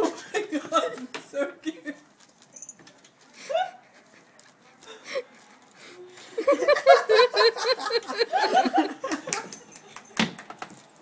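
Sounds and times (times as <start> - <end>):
person laughing: 6.4 - 9.5.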